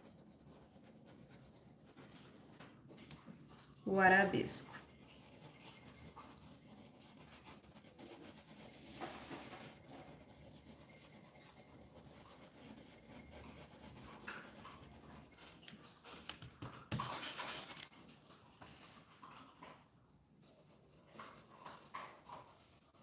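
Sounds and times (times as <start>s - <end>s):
paintbrush scrubbing: 0.0s - 2.7s, 3.9s - 15.7s, 16.9s - 17.9s, 20.4s - 23.0s.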